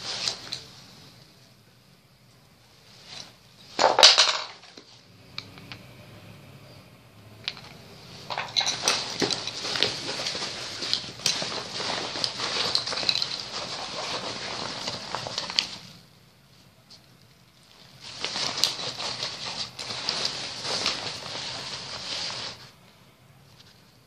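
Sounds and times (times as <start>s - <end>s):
nylon backpack fabric rustling: 8.3s - 15.9s, 17.7s - 22.8s.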